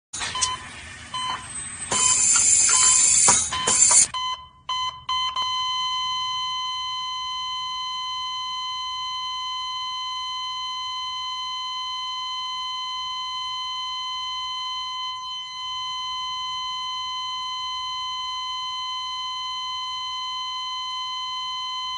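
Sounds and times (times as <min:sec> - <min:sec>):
loud burst of noise: 0:00.2 - 0:04.1
high electronic beep tone: 0:00.2 - 0:21.9.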